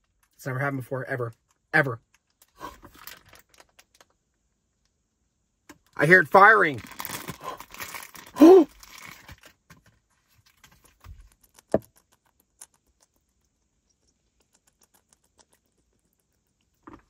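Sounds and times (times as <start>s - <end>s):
short vocal sound: 8.3s - 8.7s.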